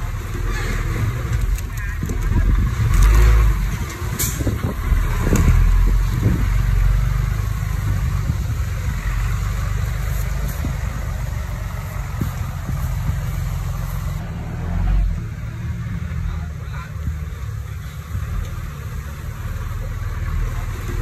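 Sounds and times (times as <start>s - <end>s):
bulldozer diesel engine rumbling: 0.0s - 21.0s.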